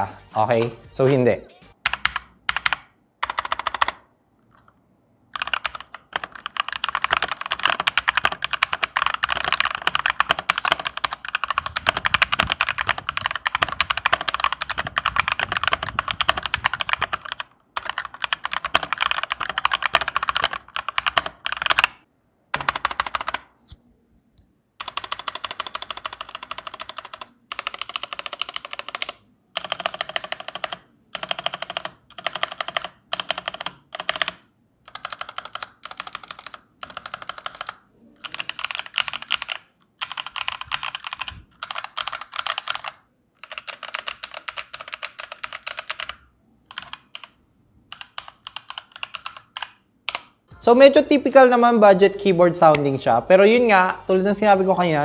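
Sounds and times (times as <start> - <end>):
mechanical keyboard typing: 1.8 - 23.5, 24.8 - 50.4.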